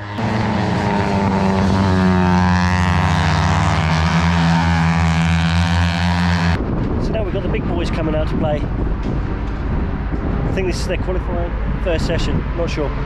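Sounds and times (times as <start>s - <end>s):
racing motorcycle passing at high revs: 0.0s - 6.6s.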